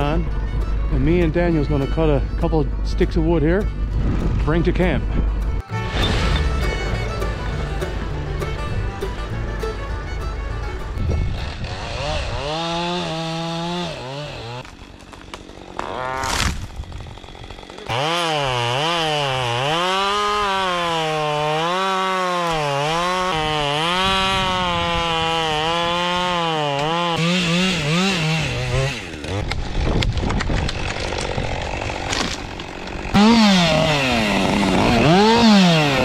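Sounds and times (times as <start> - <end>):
chainsaw cutting wood: 10.9 - 36.0.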